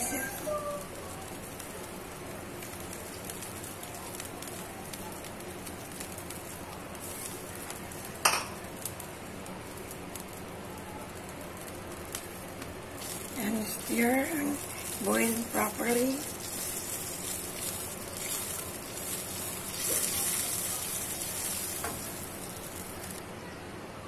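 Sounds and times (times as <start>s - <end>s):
broth simmering bubbling: 0.0s - 23.2s
kitchenware clink: 8.2s - 8.6s.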